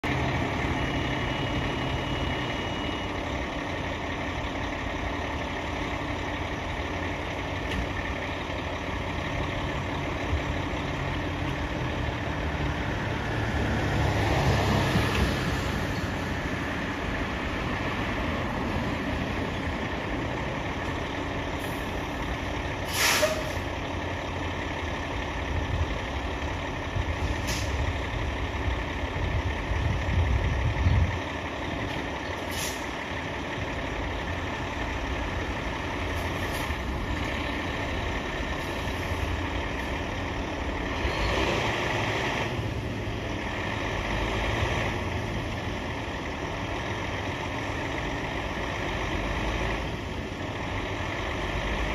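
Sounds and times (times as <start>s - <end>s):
diesel engine idling: 0.0s - 51.9s
air brake hiss: 22.8s - 23.7s, 27.3s - 27.8s, 32.4s - 32.9s.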